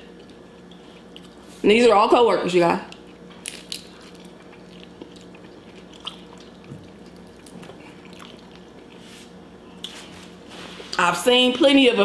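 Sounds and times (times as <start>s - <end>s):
faint steady hum: 0.0s - 12.0s
wet chewing: 2.9s - 9.0s.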